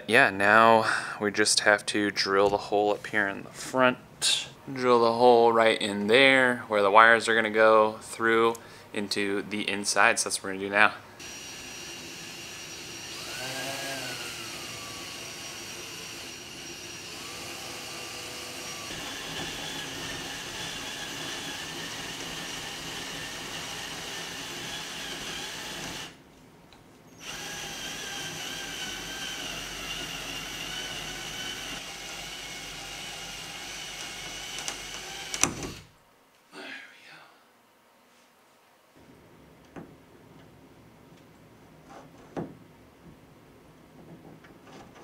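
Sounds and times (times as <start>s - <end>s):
drill with hole saw grinding: 11.2s - 26.2s, 27.2s - 35.9s.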